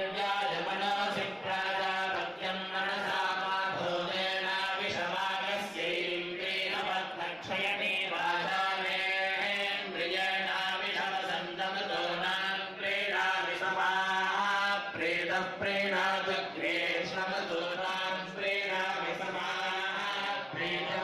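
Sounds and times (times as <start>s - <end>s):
melodic chanting: 0.0s - 21.0s.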